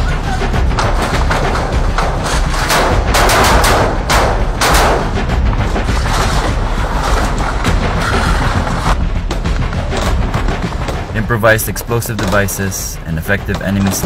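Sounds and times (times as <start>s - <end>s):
rapid rifle gunfire: 2.6s - 5.2s.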